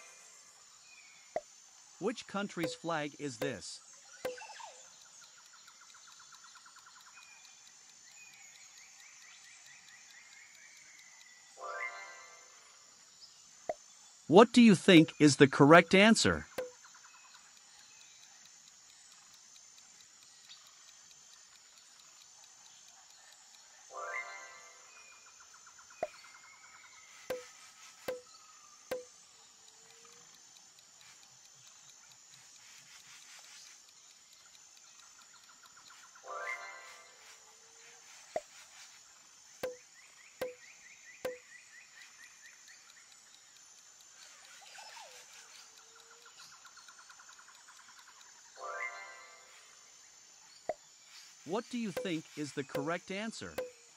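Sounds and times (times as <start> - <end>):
countdown timer ticking: 1.4 - 5.3, 14.3 - 16.8, 27.3 - 27.5, 28.1 - 28.3, 28.9 - 29.2, 39.6 - 40.6, 41.3 - 41.5, 51.5 - 53.9
faint hiss: 17.5 - 53.9.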